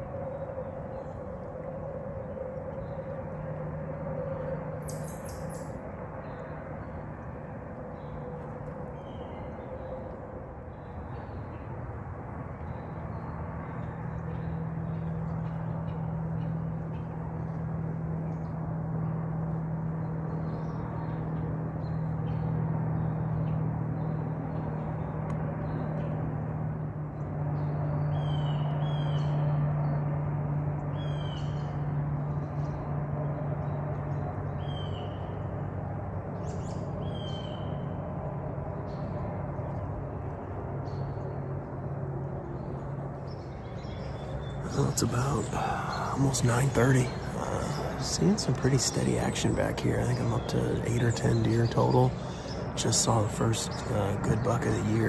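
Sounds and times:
distant engine drone: 0.0 - 55.0
bird chirping: 4.3 - 6.8, 42.6 - 55.0.

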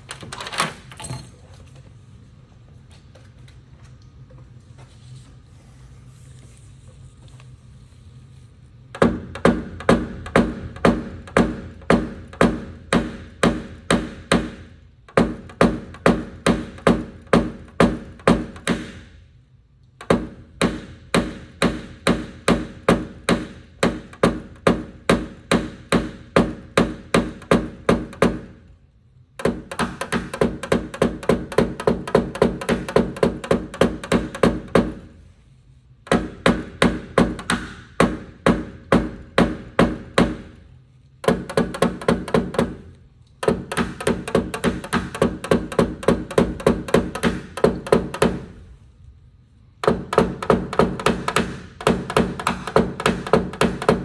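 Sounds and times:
mallet tapping punch on metal: 9.0 - 19.1, 20.0 - 28.5, 36.1 - 40.5, 41.2 - 42.8, 43.4 - 48.4, 49.8 - 54.0.

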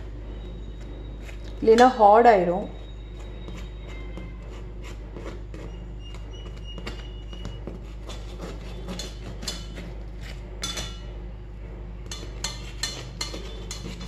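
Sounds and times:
steady low hum: 0.0 - 14.0
spoon clinking against metal tin: 12.1 - 14.0.

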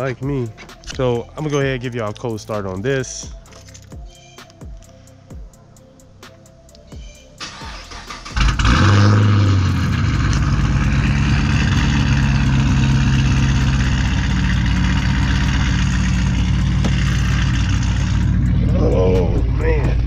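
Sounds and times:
car engine revving and idling: 7.4 - 20.0
engine cranking: 7.4 - 20.0.

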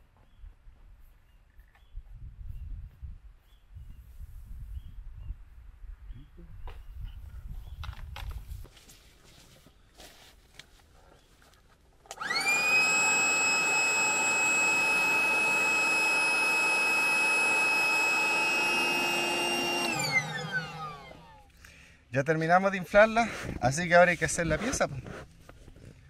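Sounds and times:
electric air inflator motor whine: 12.1 - 21.5.

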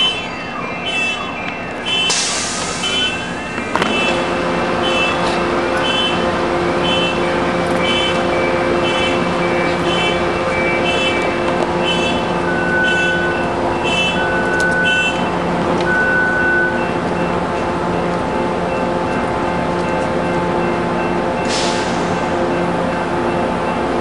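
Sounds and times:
short high warning beep: 0.0 - 17.4
lower beep: 0.0 - 23.8
idling train hum: 0.0 - 24.0.

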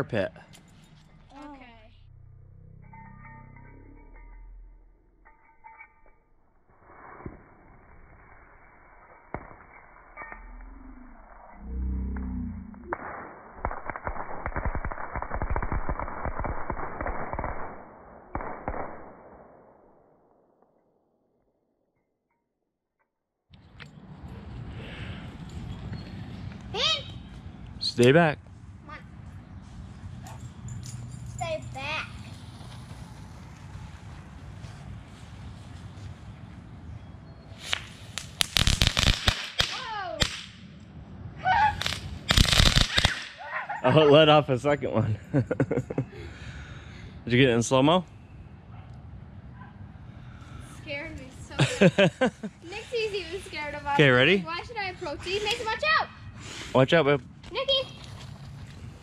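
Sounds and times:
firework crackling: 12.7 - 19.2, 37.6 - 40.7, 41.8 - 43.5
loud firework pops: 12.9 - 19.2, 37.6 - 40.6, 41.8 - 43.4.

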